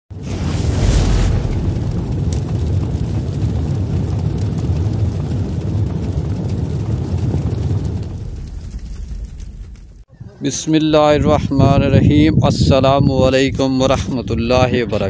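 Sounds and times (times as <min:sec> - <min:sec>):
boom: 0:00.1 - 0:10.0
deep rumble: 0:00.1 - 0:10.1.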